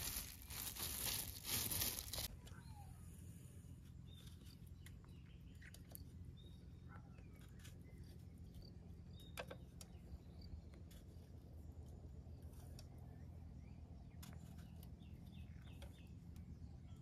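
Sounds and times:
faint bird chirps: 0.0s - 17.0s.

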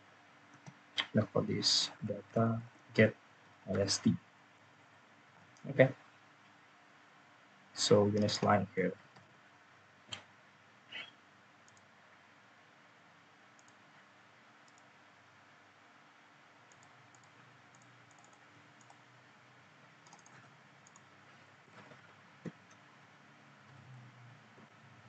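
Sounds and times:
keyboard typing: 14.6s - 14.9s, 16.7s - 19.1s, 20.0s - 21.1s.

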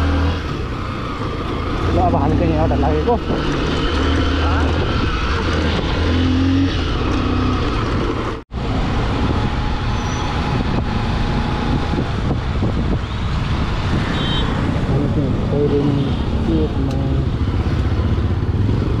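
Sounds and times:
road and traffic noise: 0.0s - 19.0s
motorcycle engine running: 16.4s - 19.0s.

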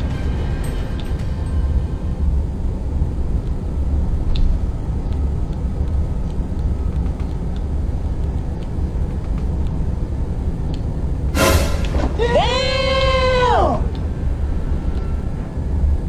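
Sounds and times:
car road and engine rumble: 0.0s - 16.0s
faint clicks: 4.2s - 10.0s, 10.6s - 10.9s.

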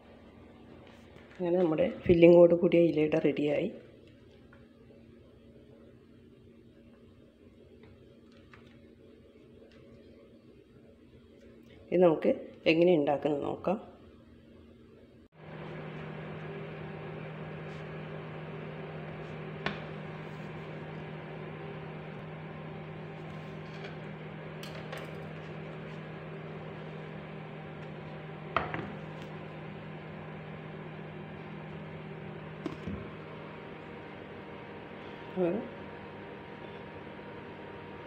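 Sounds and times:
low machine hum: 15.2s - 38.0s.

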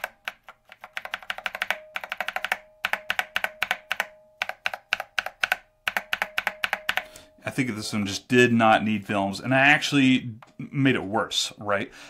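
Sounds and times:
mechanical keyboard typing: 0.0s - 7.2s.

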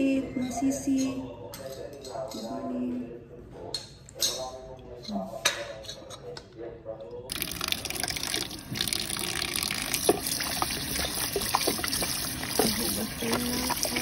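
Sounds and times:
tap water running into basin: 7.3s - 14.0s.

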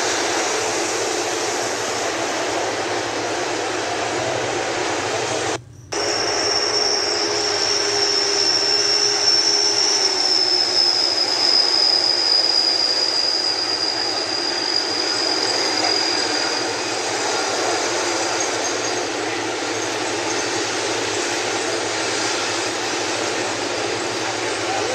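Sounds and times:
jet engines whining: 0.0s - 24.9s.

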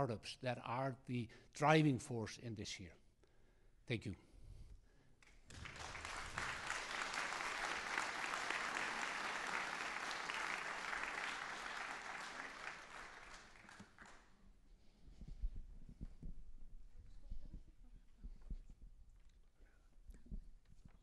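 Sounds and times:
audience applauding: 5.5s - 14.3s.

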